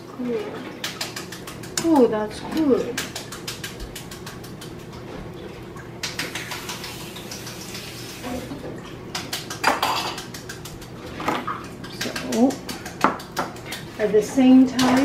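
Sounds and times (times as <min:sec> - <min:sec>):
water running from tap: 0:00.0 - 0:15.0.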